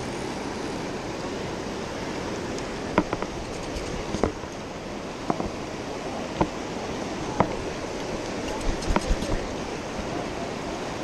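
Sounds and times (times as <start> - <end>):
river rushing over rocks: 0.0 - 11.0
sharp knocks: 2.9 - 4.4.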